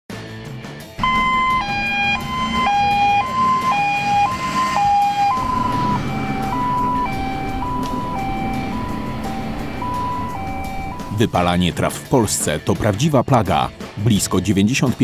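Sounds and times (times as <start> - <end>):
diesel engine running: 1.0 - 11.5
two-tone siren: 1.0 - 11.6.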